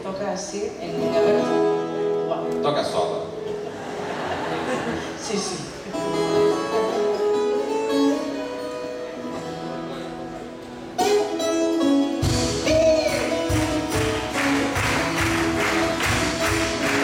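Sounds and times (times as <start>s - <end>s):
plucked guitar: 0.8s - 4.0s, 5.0s - 17.0s
accordion chords: 0.9s - 17.0s
drums steady beat: 12.2s - 17.0s.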